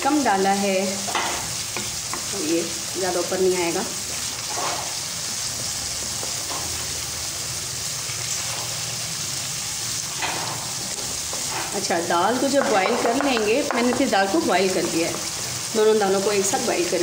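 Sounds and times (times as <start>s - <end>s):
paste sizzling in oil: 0.0s - 17.0s
wooden spoon scraping: 4.3s - 6.9s.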